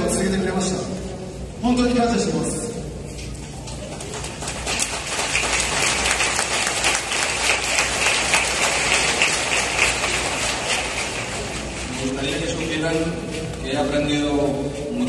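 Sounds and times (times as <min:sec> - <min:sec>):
stadium crowd applauding: 0:03.8 - 0:12.6.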